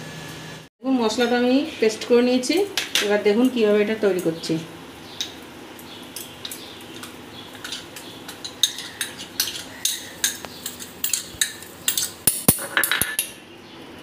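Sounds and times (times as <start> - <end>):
spoon clinking and scraping bowl: 6.2 - 13.4.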